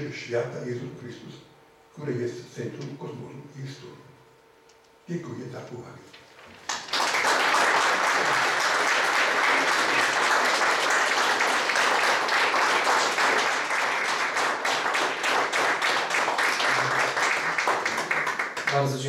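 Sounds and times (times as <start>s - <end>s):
audience applauding: 6.5s - 19.0s.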